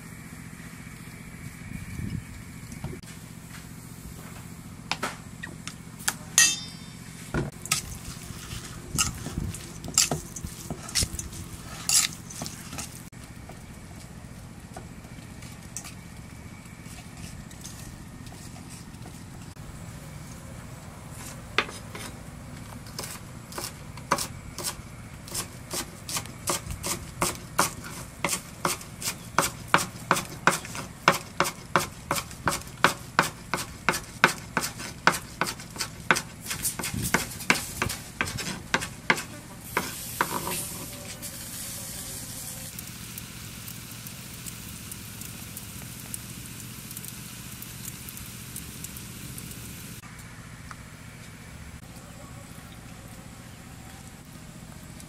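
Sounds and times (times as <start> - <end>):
cleaver chopping on wooden board: 25.3 - 40.4.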